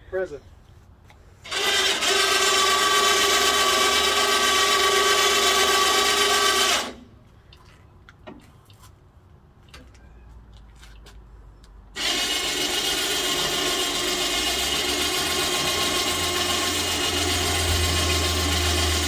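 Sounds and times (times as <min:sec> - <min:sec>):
electric winch whining: 0:01.5 - 0:07.0, 0:12.0 - 0:19.0.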